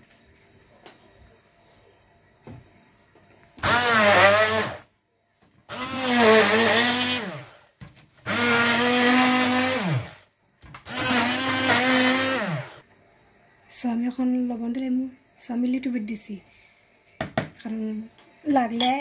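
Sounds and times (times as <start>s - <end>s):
stick blender motor whine: 3.6s - 4.9s, 5.7s - 10.2s, 10.8s - 12.8s.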